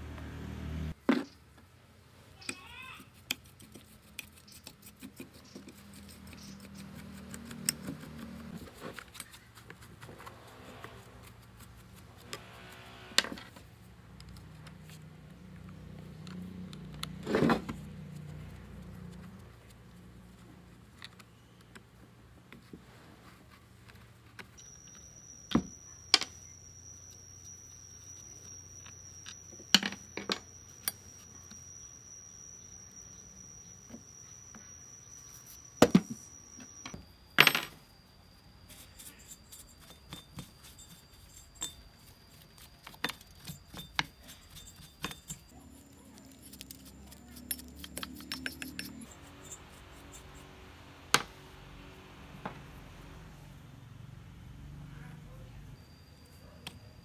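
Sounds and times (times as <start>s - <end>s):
brush scrubbing debris: 38.7s - 50.3s.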